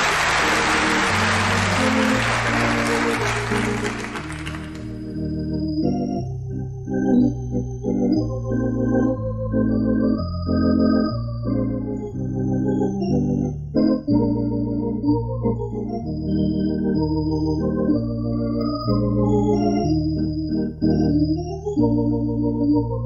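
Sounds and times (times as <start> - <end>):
applause: 0.0 - 5.0
organ music: 0.0 - 23.0.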